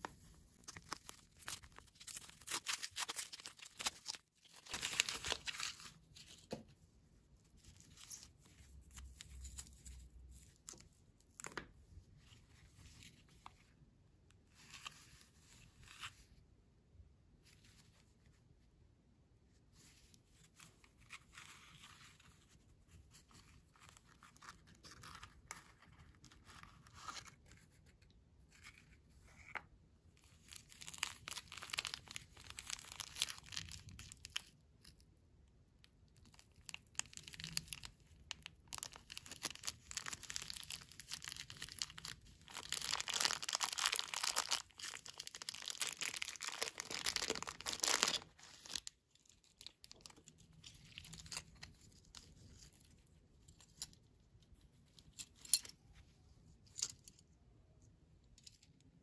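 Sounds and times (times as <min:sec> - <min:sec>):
plastic bag crinkling and tearing: 0:00.6 - 0:05.9, 0:30.4 - 0:34.5, 0:36.3 - 0:51.8.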